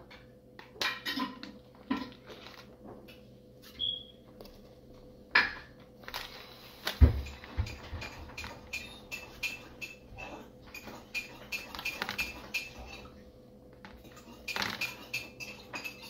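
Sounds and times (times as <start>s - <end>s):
kitchen utensils clinking: 0.8s - 2.2s, 7.2s - 13.2s, 14.0s - 16.0s.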